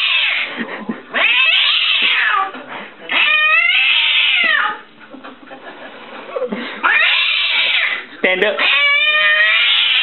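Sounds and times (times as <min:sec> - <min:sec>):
cat yowling meows: 0:00.0 - 0:00.5, 0:01.2 - 0:02.5, 0:03.1 - 0:04.8, 0:06.8 - 0:08.0, 0:08.6 - 0:10.0.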